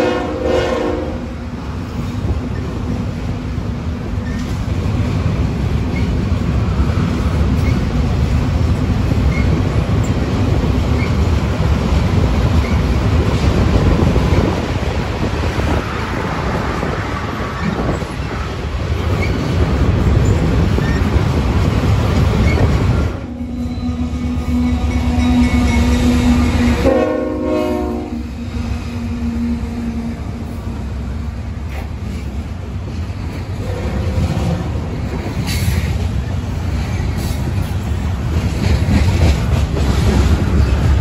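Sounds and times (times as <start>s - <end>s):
diesel locomotive approaching: 0.0s - 41.0s
freight train rumbling over bridge: 0.0s - 41.0s
wheels clicking over rail joints: 7.2s - 23.2s, 34.2s - 41.0s.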